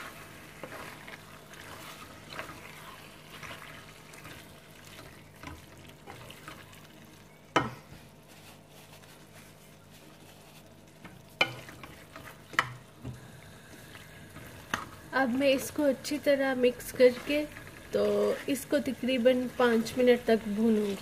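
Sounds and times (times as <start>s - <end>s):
wooden spatula scraping a pan: 0.0s - 6.7s, 7.6s - 12.8s
food sizzling in a pan: 0.0s - 9.4s, 10.1s - 21.0s.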